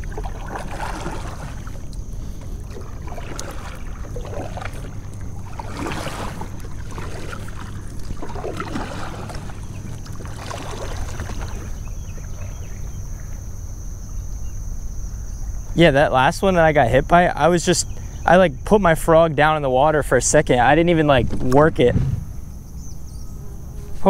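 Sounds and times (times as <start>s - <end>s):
water swishing at kayak hull: 0.0s - 14.4s
steady low rumble: 0.0s - 24.0s.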